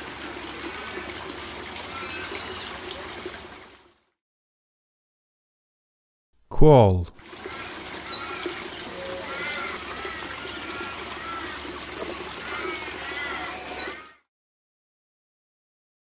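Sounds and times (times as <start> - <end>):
soft bird warbling: 2.1 - 2.7, 7.7 - 8.3, 8.9 - 10.3, 11.8 - 12.8, 13.4 - 14.0
high falling bird chirp: 7.8 - 8.3, 9.8 - 10.2, 11.8 - 12.2, 13.5 - 13.9.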